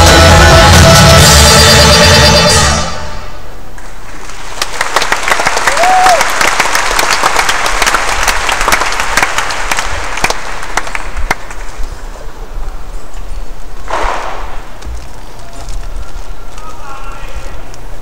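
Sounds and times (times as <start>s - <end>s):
crowd noise: 0.0s - 18.0s
audience clapping: 3.8s - 11.9s.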